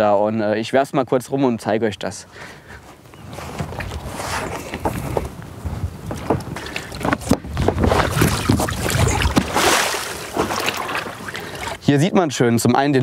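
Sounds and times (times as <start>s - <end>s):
inflatable boat knocking and rubbing: 3.2s - 11.9s
water splashing and sloshing: 3.3s - 11.9s.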